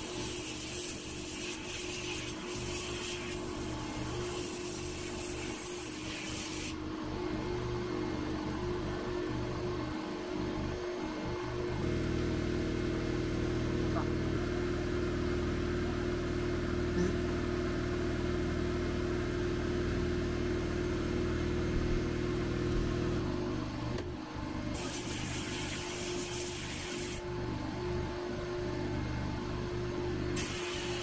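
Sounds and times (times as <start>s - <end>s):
compressed air hiss: 0.0s - 3.5s, 4.2s - 6.8s, 24.8s - 27.2s, 30.4s - 31.0s
steady motor hum: 0.0s - 31.0s.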